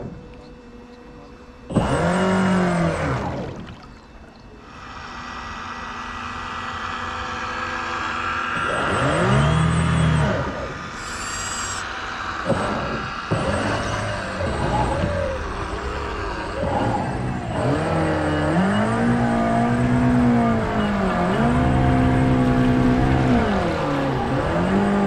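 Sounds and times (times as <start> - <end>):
model boat motor revving: 0.0 - 25.0.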